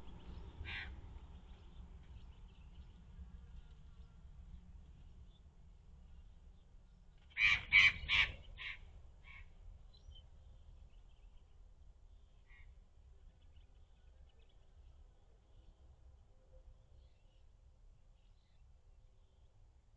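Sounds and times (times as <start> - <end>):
magpie squawking: 7.4 - 8.8.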